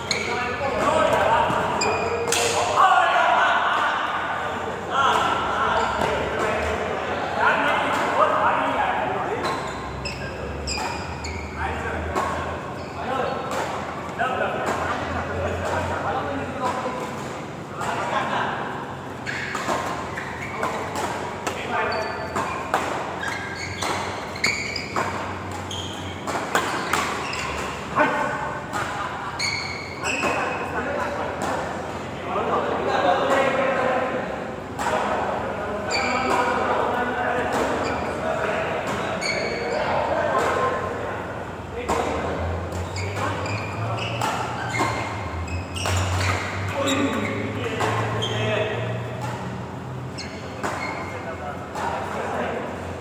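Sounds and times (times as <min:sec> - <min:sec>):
shoes squeaking on court: 0:00.0 - 0:02.6, 0:05.1 - 0:06.8, 0:09.2 - 0:16.0, 0:18.8 - 0:30.8, 0:35.8 - 0:53.0
rackets striking shuttlecocks: 0:00.0 - 0:02.8, 0:19.0 - 0:29.0, 0:35.9 - 0:53.0.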